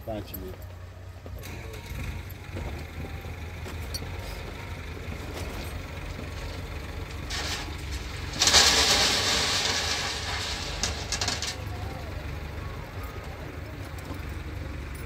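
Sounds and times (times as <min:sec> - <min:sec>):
diesel engine running: 0:00.0 - 0:15.0
stones clattering into steel trailer: 0:05.3 - 0:12.4.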